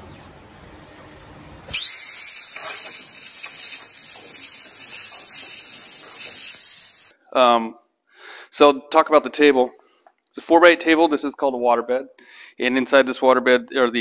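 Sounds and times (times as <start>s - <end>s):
plasma torch arc hissing: 1.7s - 7.1s.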